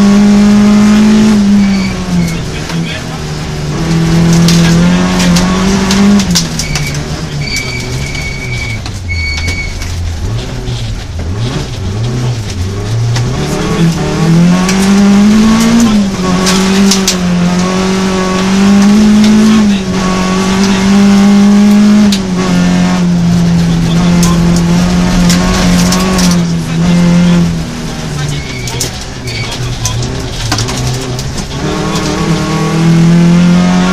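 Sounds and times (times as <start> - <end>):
gear changes: 0.0 - 33.9
rally car engine revving: 0.0 - 33.9
gravel pinging against car body: 3.7 - 17.7, 23.4 - 32.5.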